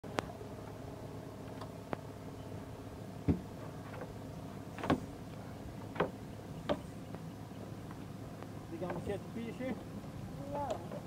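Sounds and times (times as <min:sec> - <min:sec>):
steady low hum: 0:00.0 - 0:11.0
knocks on boat deck: 0:03.2 - 0:03.5, 0:05.9 - 0:06.9.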